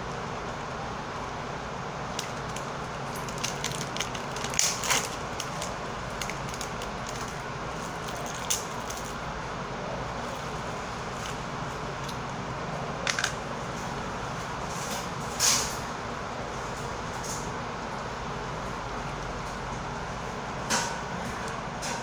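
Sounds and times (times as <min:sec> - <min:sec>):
packaging crackling and rustling: 0:02.1 - 0:09.2.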